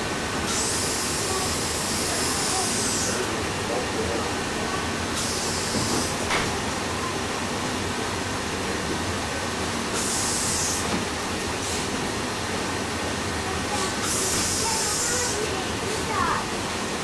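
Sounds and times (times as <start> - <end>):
high hiss of steam: 0.4 - 3.3, 5.2 - 6.2, 9.9 - 10.9, 13.7 - 15.5.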